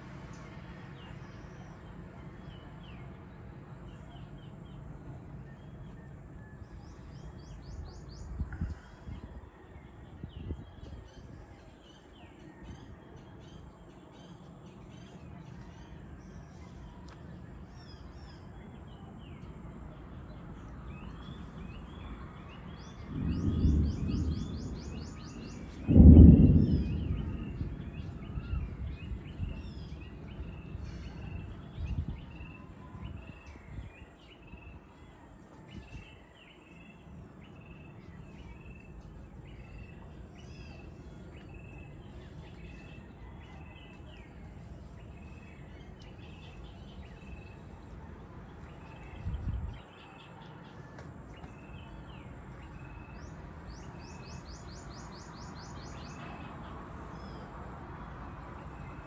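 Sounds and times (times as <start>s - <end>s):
small birds chirping: 0.0s - 59.0s
thunder rumbling: 22.5s - 32.3s.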